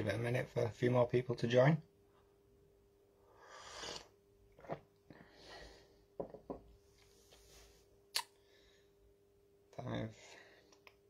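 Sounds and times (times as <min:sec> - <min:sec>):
faint steady hum: 0:00.0 - 0:11.0
sip from a mug: 0:03.6 - 0:04.8.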